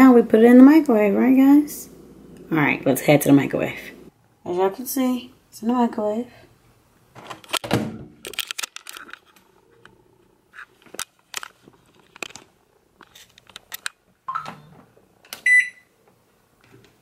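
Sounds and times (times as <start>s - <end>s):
microwave beep: 14.3s - 14.8s, 15.4s - 15.9s.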